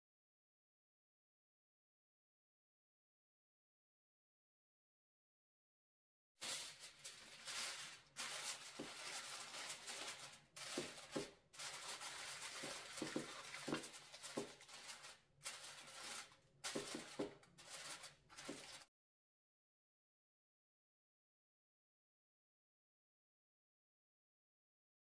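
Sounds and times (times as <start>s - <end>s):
aluminium foil crinkling: 6.4s - 18.9s.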